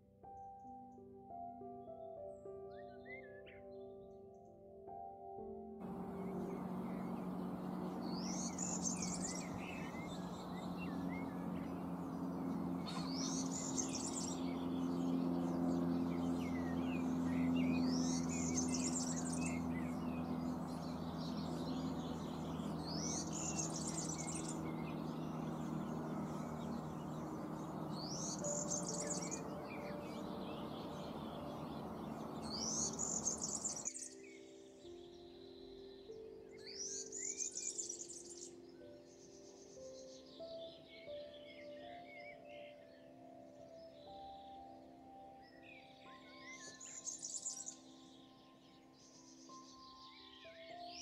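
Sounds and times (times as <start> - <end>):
songbird singing: 2.1 - 4.5, 5.8 - 51.0
faint hum: 5.8 - 33.8.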